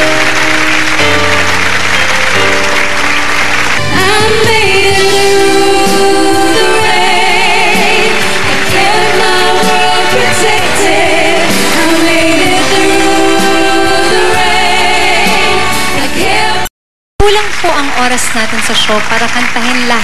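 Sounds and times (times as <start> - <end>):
band accompaniment: 0.0 - 16.6
women singing pop ballad: 3.9 - 16.7.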